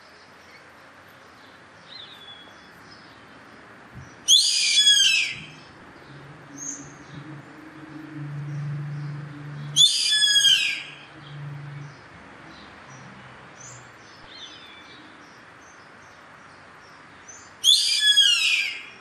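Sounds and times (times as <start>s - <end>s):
caracara calling: 4.2s - 12.0s, 17.6s - 19.0s.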